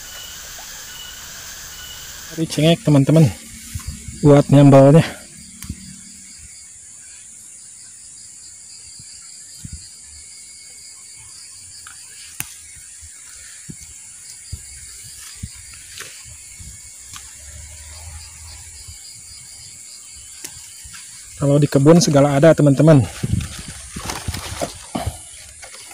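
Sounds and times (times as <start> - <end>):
leaves rustling: 0.0 - 6.6, 20.3 - 25.9
high-pitched trill: 0.0 - 7.3.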